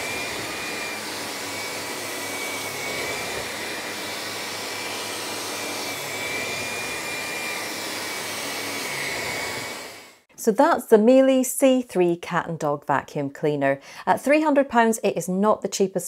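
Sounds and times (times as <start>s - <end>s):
vacuum cleaner on carpet: 0.0s - 10.2s.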